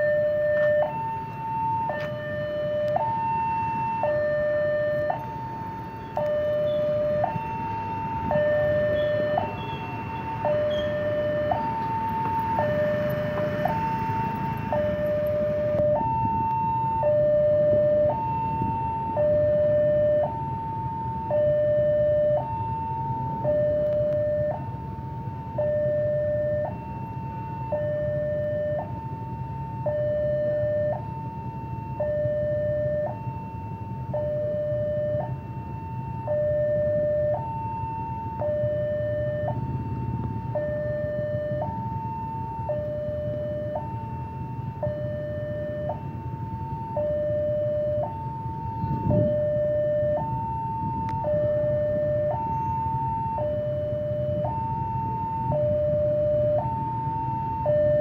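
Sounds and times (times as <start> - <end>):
level crossing two-tone alarm: 0.0 - 24.9, 25.5 - 58.0
motorcycle engines idling: 5.8 - 15.8.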